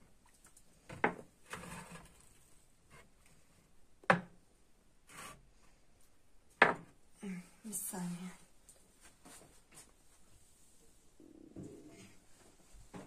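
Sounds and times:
pots scraping: 0:00.9 - 0:03.1
clay pots knocking on countertop: 0:06.6 - 0:06.9.

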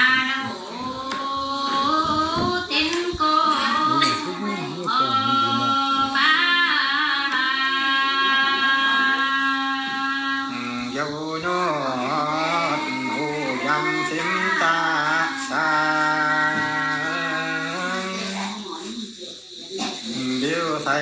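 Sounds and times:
woman singing folk song: 0:00.0 - 0:04.2.

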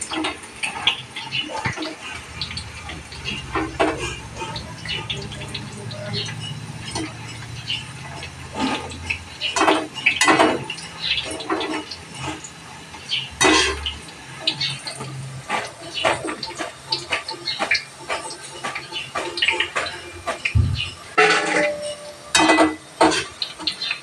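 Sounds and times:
dough frying in hot oil: 0:00.0 - 0:24.0
metal ladle scraping a wok: 0:21.1 - 0:23.4.

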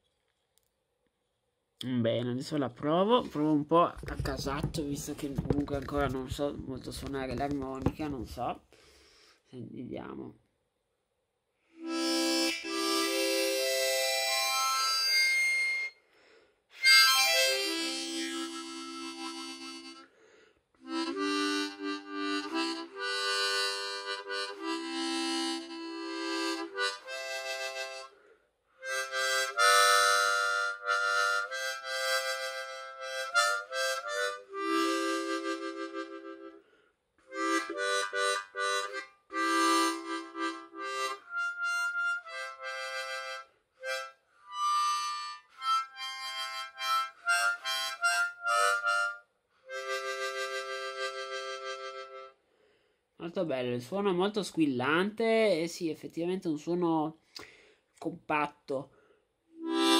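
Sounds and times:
harmonica chords: 0:11.6 - 0:52.9, 0:59.5 - 0:59.9.

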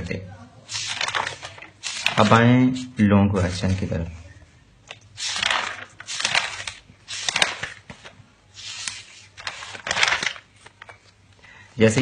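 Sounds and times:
paper pages turning: 0:00.7 - 0:03.9, 0:04.9 - 0:11.2.

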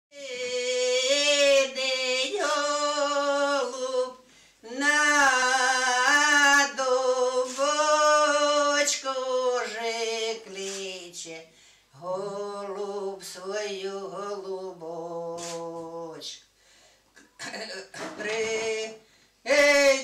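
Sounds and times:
women singing unaccompanied: 0:00.1 - 0:16.4, 0:17.4 - 0:20.0.

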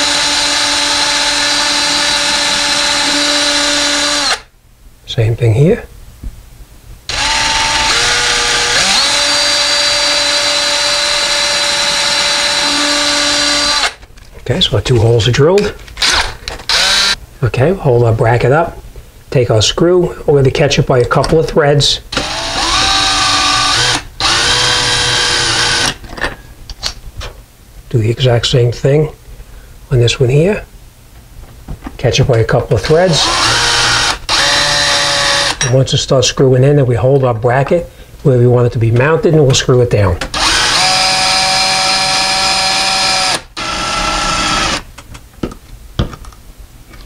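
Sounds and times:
cordless drill whining: 0:00.0 - 0:04.5, 0:07.1 - 0:14.0, 0:16.0 - 0:17.2, 0:22.1 - 0:26.0, 0:33.2 - 0:35.6, 0:40.3 - 0:44.9.

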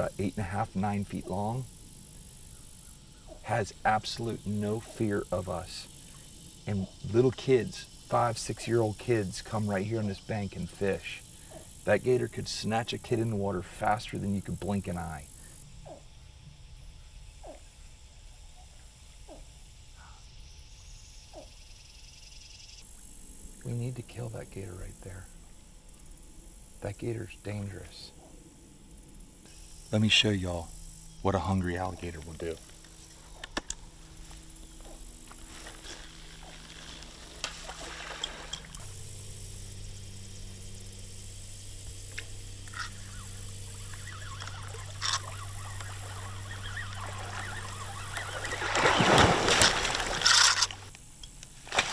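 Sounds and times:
high insect drone: 0:00.0 - 0:51.9
water sloshing and trickling: 0:35.4 - 0:39.5, 0:43.7 - 0:51.9
fishing rod clicks: 0:42.0 - 0:46.3, 0:49.5 - 0:51.6
short falling animal chirp: 0:42.7 - 0:50.2.

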